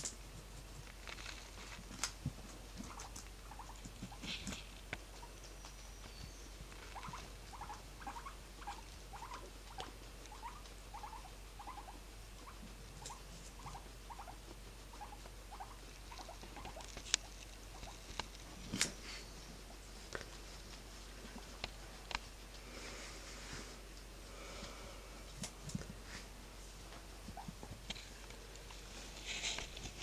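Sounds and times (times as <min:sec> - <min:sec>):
guinea pig squeaking: 0:01.0 - 0:22.4, 0:27.2 - 0:28.2.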